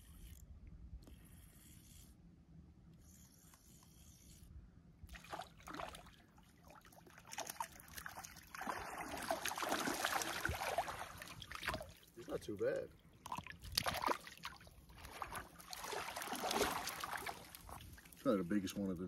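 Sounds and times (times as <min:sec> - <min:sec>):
fish splashing in water: 0:05.1 - 0:12.1, 0:13.3 - 0:18.2.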